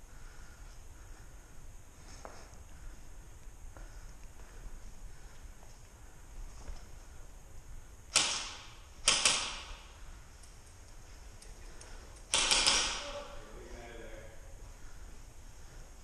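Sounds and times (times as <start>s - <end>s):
airsoft rifle shots: 8.1s - 10.0s, 12.3s - 13.3s.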